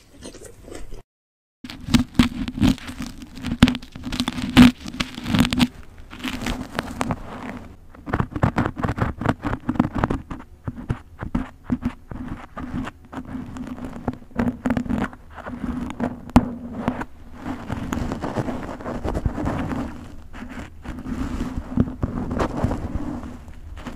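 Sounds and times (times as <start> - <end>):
low steady hum: 1.7 - 23.9
tool scratching through hair: 1.7 - 23.9.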